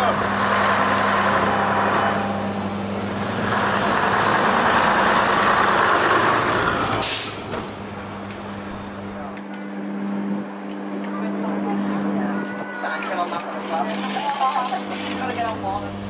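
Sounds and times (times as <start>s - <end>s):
bus engine driving past: 0.0s - 12.6s
hiss of released air: 7.0s - 7.6s.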